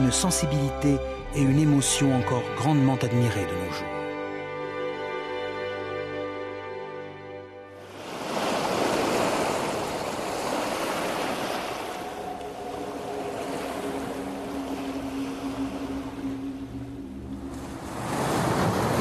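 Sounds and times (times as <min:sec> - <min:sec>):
waves washing onto beach: 0:07.8 - 0:19.0.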